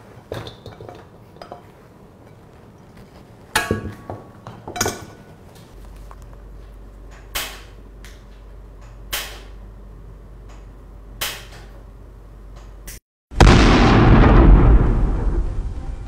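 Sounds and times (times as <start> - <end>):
low steady hum: 0.0 - 16.0
loud explosion: 13.3 - 16.0.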